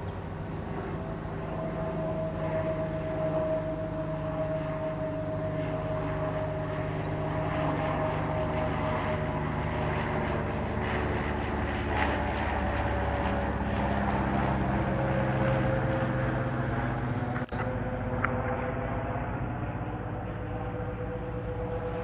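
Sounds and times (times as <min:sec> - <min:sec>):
propeller plane engine droning: 0:00.0 - 0:22.0.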